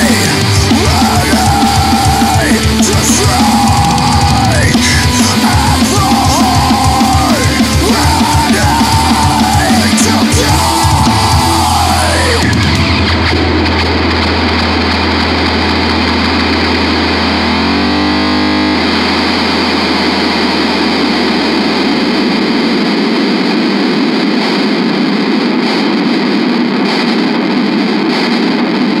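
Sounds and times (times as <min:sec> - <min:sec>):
distorted guitar and bass feedback: 0:00.0 - 0:29.0
held low bass note: 0:12.5 - 0:22.9.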